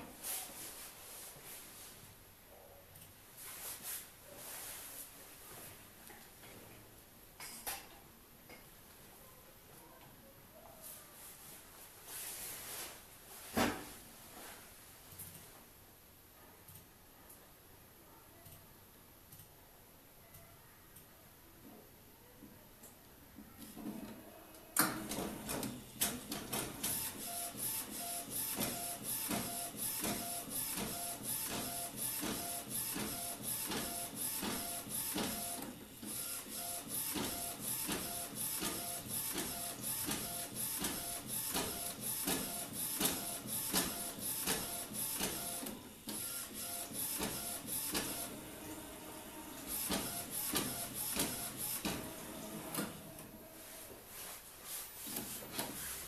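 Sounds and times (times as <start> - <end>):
printer carriage motor whine and clicks: 23.8 - 53.6.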